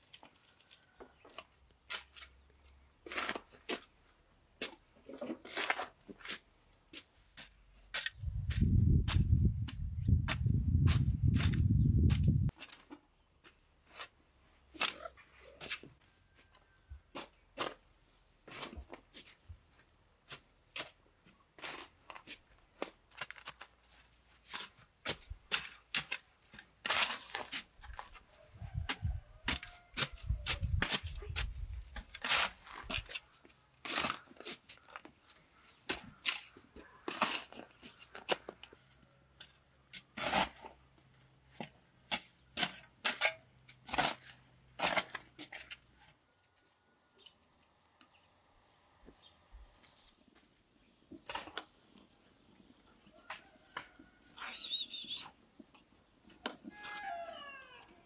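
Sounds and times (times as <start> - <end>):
spade scraping soil: 3.0 - 4.0, 4.6 - 13.0, 17.1 - 19.4, 21.6 - 35.1, 35.8 - 38.8, 39.4 - 40.8, 41.6 - 45.9.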